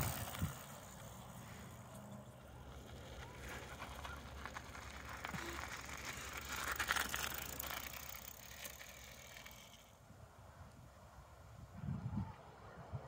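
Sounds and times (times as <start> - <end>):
bike tyres crunching on gravel: 0.0 - 9.8
bike rattling and clicking: 0.0 - 10.0.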